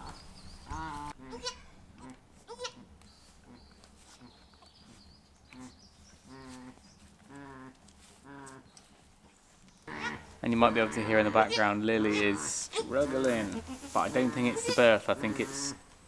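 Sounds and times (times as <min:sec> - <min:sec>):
goat bleating: 0:00.7 - 0:02.9, 0:09.9 - 0:15.8.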